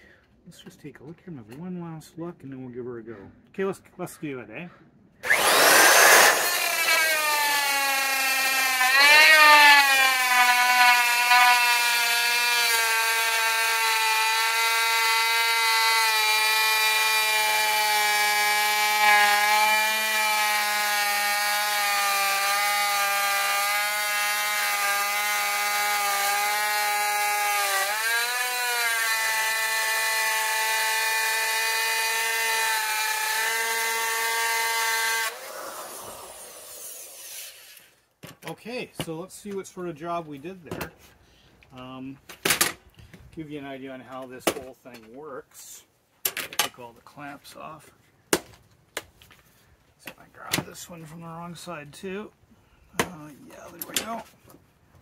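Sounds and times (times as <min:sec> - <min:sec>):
router motor whining: 0:05.2 - 0:37.8.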